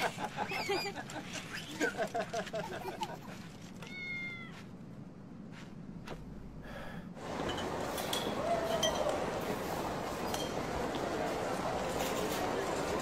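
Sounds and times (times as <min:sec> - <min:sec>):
faint background noise: 0:00.0 - 0:13.0
supermarket ambience: 0:05.4 - 0:13.0.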